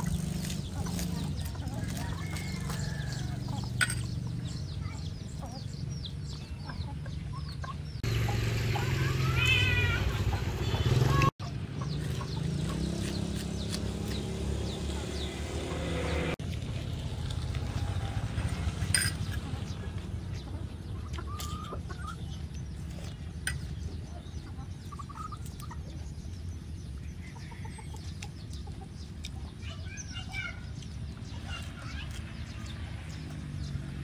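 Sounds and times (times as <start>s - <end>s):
chickens clucking: 0.0s - 16.8s, 17.6s - 33.4s.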